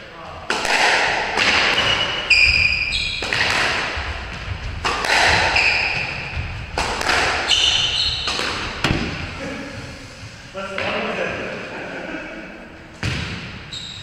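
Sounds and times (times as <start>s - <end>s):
squash ball striking rackets and walls: 0.4s - 9.4s, 13.0s - 14.0s
shoes squeaking on wooden floor: 1.8s - 10.4s.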